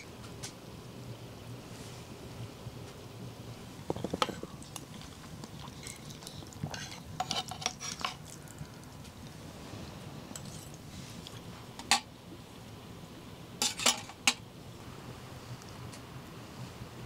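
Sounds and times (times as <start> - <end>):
low steady background noise: 0.0 - 17.0
cutlery clinking against dishes: 10.4 - 10.8, 13.6 - 14.4.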